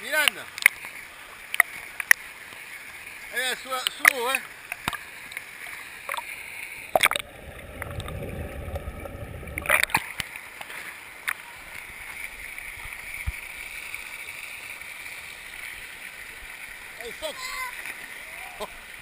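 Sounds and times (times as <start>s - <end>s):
water pouring from fountains: 0.0s - 19.0s
small water splashes: 0.2s - 19.0s
loud splash: 6.9s - 10.1s
muffled underwater rumble: 7.0s - 10.0s.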